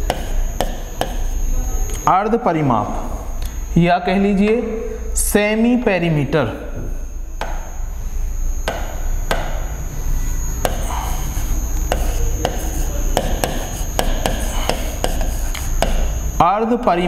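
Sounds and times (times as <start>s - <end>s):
chalk tapping and scraping: 0.0s - 1.4s, 10.6s - 16.1s
low electrical hum: 0.0s - 17.0s.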